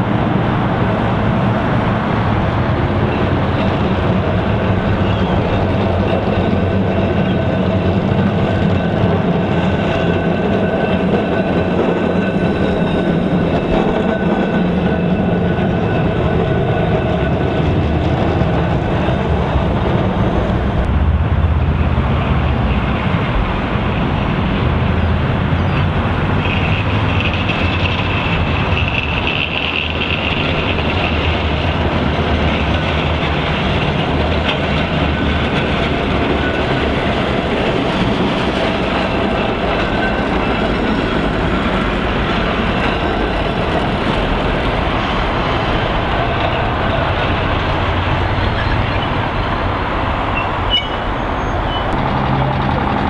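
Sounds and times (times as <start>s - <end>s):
tram wheels rumbling on rails: 0.0s - 53.0s
high wheel squeal: 3.0s - 20.8s, 34.5s - 53.0s.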